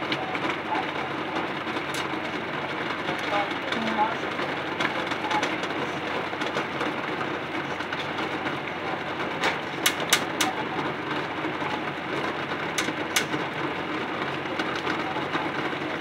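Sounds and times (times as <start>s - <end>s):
water boiling hard: 0.0s - 16.0s
sharp clicks: 9.4s - 10.6s, 12.8s - 13.4s.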